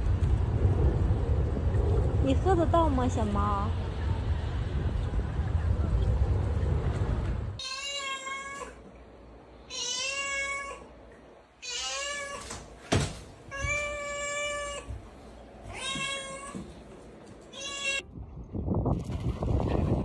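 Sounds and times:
cat meowing: 7.6s - 8.8s, 9.7s - 10.9s, 11.6s - 12.6s, 13.5s - 14.9s, 15.7s - 16.7s, 17.5s - 18.0s.

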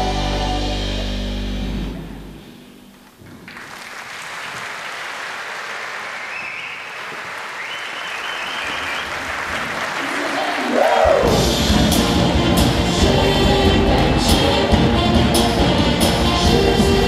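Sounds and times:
stage music: 0.0s - 17.0s
audience applause: 3.2s - 11.5s.

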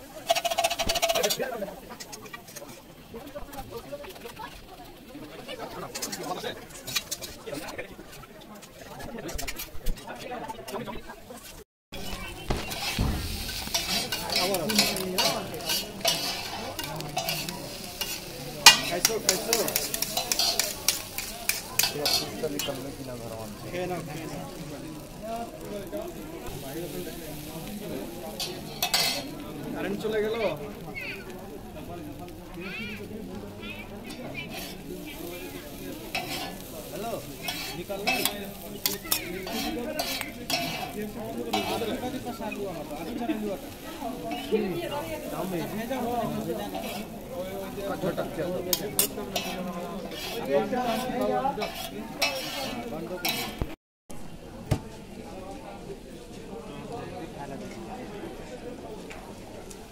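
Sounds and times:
food sizzling: 0.0s - 53.8s
metal spatulas scraping griddle: 0.2s - 2.8s, 5.9s - 7.7s, 11.4s - 23.4s, 26.5s - 29.4s, 33.8s - 53.8s.

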